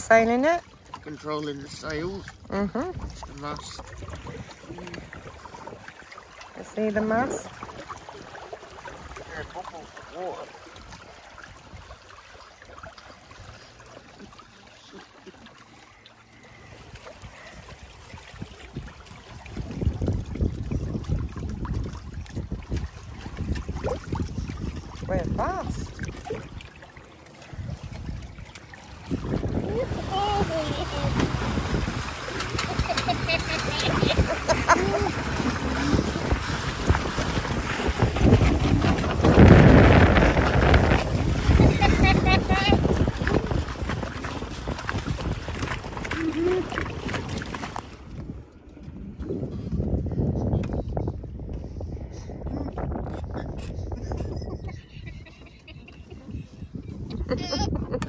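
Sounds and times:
water gurgling along boat hull: 0:00.0 - 0:58.0
wind buffeting microphone: 0:01.9 - 0:06.0, 0:16.8 - 0:26.8, 0:27.5 - 0:58.0.

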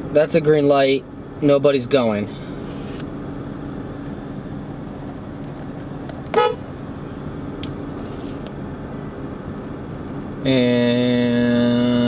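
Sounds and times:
car cabin hum idling: 0:00.0 - 0:12.0
short car horn toot: 0:06.3 - 0:06.7.

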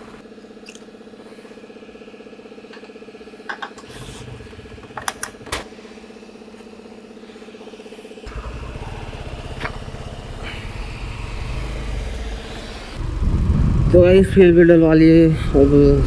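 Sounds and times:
steady low hum: 0:03.2 - 0:16.0.

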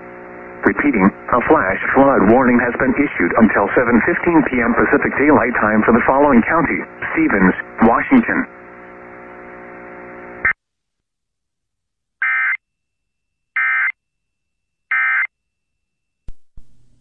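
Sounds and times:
steady low buzz: 0:00.0 - 0:10.6, 0:16.3 - 0:17.0.

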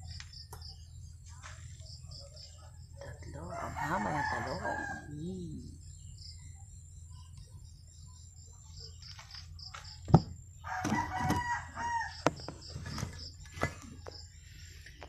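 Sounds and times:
pulsing insect chirp: 0:00.0 - 0:15.0
rooster crowing: 0:03.3 - 0:05.2, 0:10.6 - 0:12.5.

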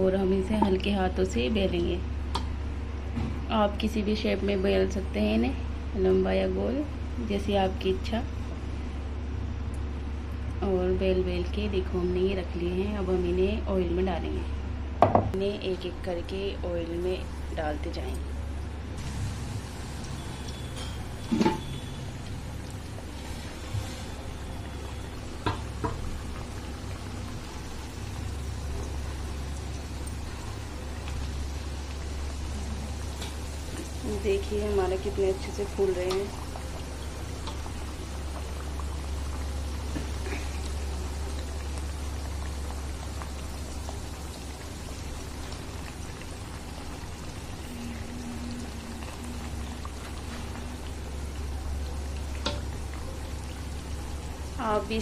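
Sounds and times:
low steady hum: 0:00.0 - 0:55.0
hot oil sizzling: 0:16.8 - 0:55.0.

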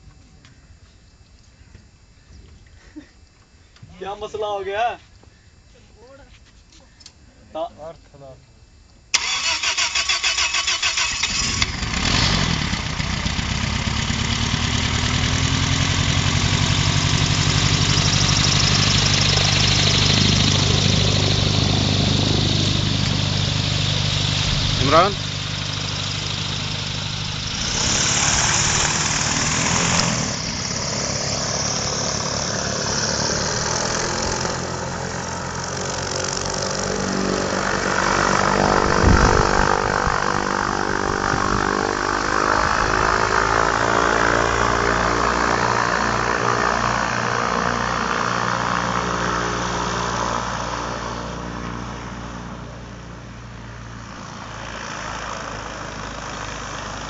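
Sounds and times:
airboat engine and propeller: 0:11.5 - 0:57.0.

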